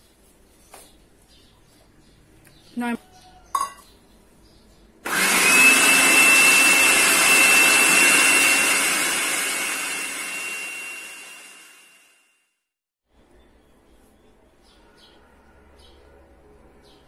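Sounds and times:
food processor whining: 5.0s - 12.2s.

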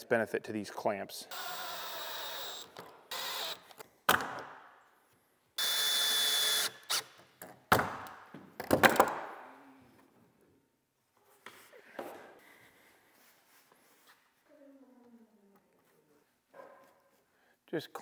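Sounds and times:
drill whining: 1.3s - 3.8s, 5.6s - 7.1s.

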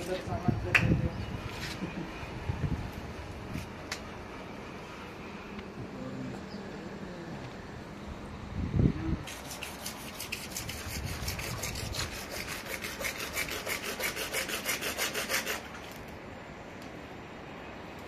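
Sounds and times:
hacksaw sawing plastic pipe: 9.3s - 15.8s.

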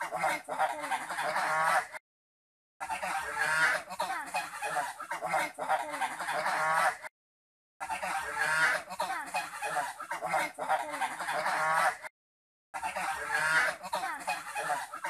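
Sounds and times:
geese honking: 0.0s - 2.0s, 2.8s - 7.1s, 7.8s - 12.1s, 12.8s - 15.0s.

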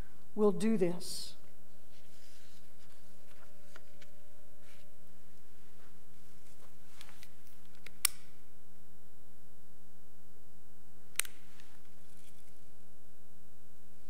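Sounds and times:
steady electrical hum: 0.0s - 14.0s
lighter clicks: 7.8s - 8.3s.

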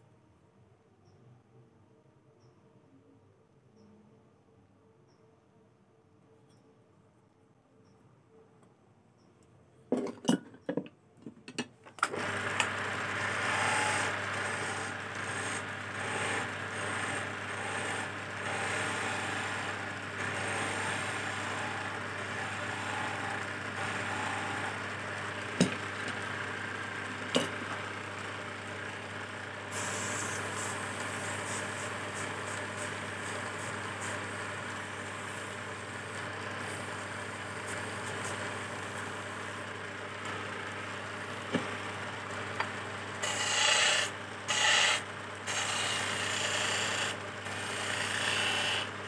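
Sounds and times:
wood lathe humming: 12.1s - 49.0s
chisel scraping spinning wood: 12.2s - 49.0s.

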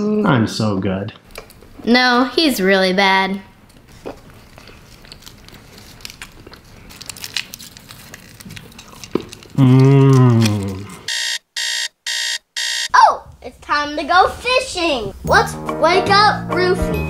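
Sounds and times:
foil wrappers crinkling: 3.7s - 11.1s
low voice drawn-out sound: 9.6s - 11.1s
alarm clock beeping: 11.1s - 13.0s.

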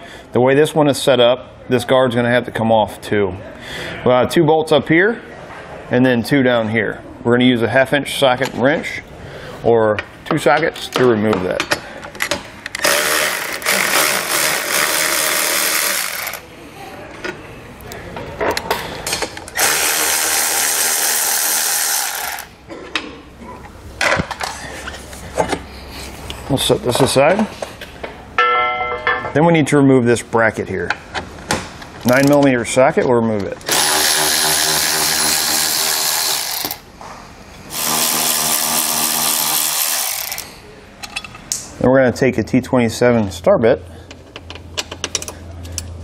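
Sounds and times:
electric ratchet motor running: 12.8s - 16.4s, 19.6s - 22.5s, 33.7s - 36.8s, 37.7s - 40.5s.

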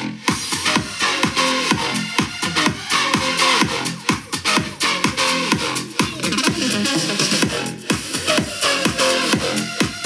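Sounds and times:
electronic dance music: 0.0s - 10.0s.

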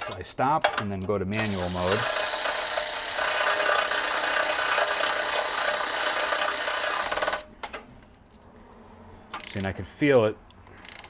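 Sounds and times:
electric ratchet spinning: 1.4s - 7.4s.

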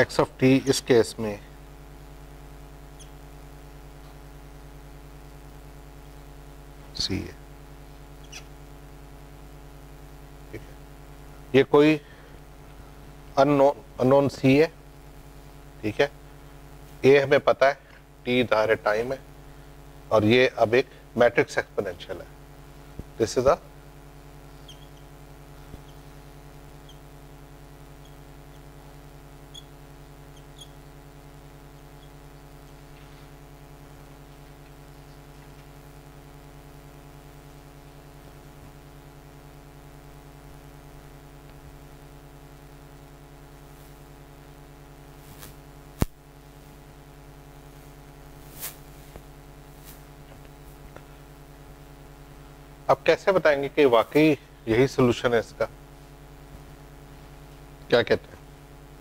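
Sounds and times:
electrical hum: 0.0s - 59.0s
marker squeaking on whiteboard: 3.0s - 3.2s, 8.2s - 8.6s, 24.5s - 27.2s, 27.8s - 33.1s.

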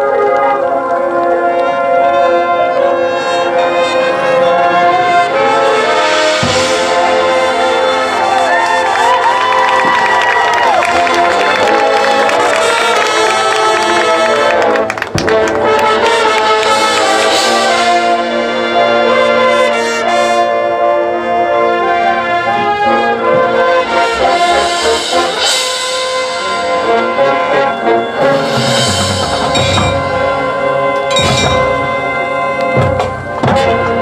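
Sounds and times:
brass section playing chords: 0.0s - 34.0s
low percussion: 22.4s - 34.0s.

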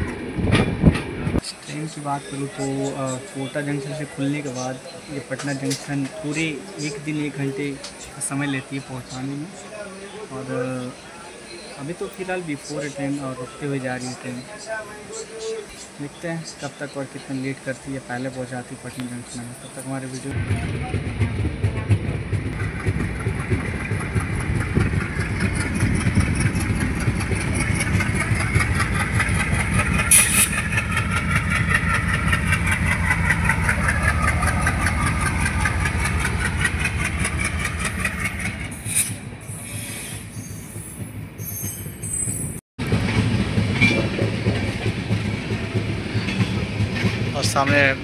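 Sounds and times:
train rumble: 0.0s - 9.2s, 11.8s - 48.0s
train wheels clattering: 20.4s - 42.0s, 42.8s - 48.0s.

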